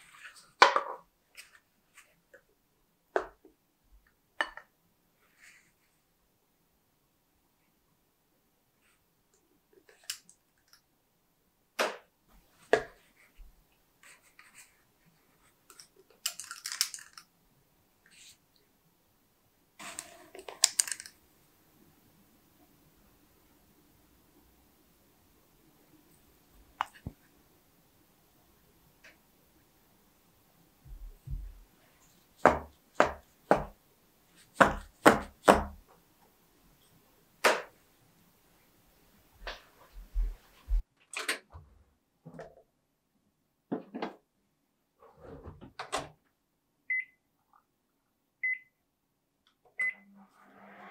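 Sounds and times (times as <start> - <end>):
paper cups crinkling: 16.2 - 17.2, 19.8 - 21.2.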